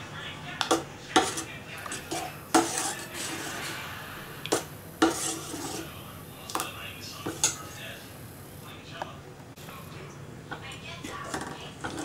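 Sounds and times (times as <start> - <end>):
spoon scraping metal pot: 0.6 - 6.6, 7.2 - 7.8, 11.0 - 12.0.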